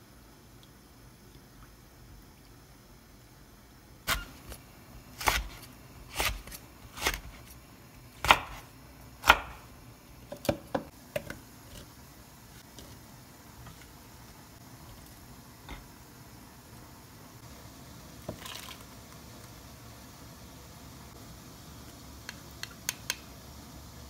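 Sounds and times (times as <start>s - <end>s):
knife chopping on wooden board: 4.1s - 4.6s, 5.2s - 7.5s, 8.2s - 9.7s.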